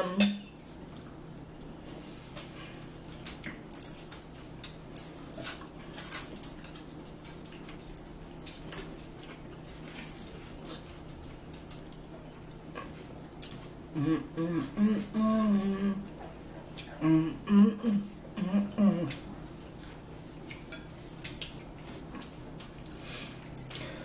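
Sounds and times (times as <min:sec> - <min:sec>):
low steady hum: 0:00.0 - 0:24.0
chewing smacks: 0:02.8 - 0:03.8, 0:16.2 - 0:17.0, 0:19.0 - 0:23.5.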